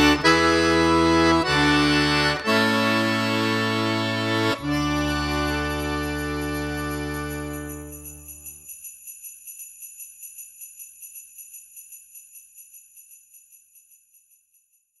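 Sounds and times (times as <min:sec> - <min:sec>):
sleigh bells shaken: 0:04.6 - 0:15.0.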